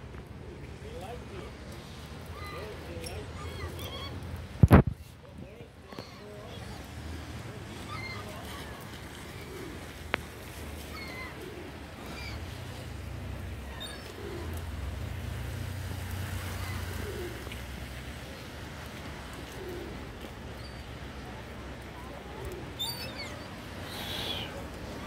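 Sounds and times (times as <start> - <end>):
pigeons cooing: 2.3 - 4.2, 7.6 - 15.5, 16.1 - 17.6, 19.2 - 25.0.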